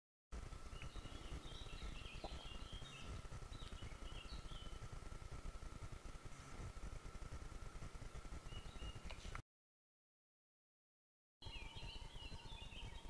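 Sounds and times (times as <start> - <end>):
songbirds chirping: 0.4 - 9.4, 11.4 - 13.0
thin steady high tone: 11.4 - 13.0.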